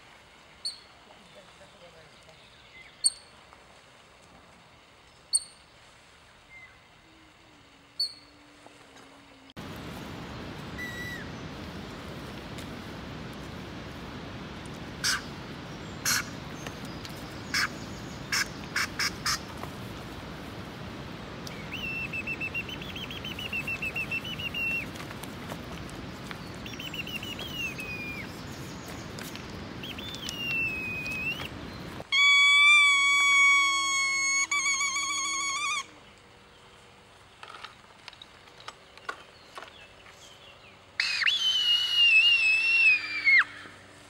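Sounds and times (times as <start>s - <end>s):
warbling whistled calls: 2.6s - 3.3s, 6.4s - 8.4s, 10.6s - 11.5s, 15.0s - 19.4s, 21.5s - 25.0s, 26.2s - 36.0s, 41.0s - 43.9s
steady rushing noise: 9.6s - 32.1s.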